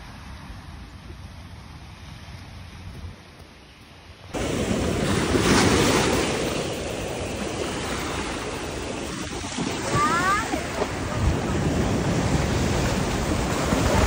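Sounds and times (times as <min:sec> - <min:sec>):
sea waves washing on shore: 0:04.3 - 0:14.0
wind on microphone: 0:04.4 - 0:14.0.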